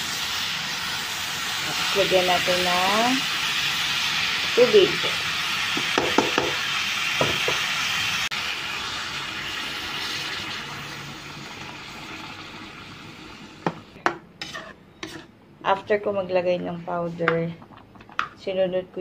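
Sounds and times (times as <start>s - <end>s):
chicken sizzling in a pan: 0.0s - 14.0s
metal spatula scraping: 14.4s - 15.4s.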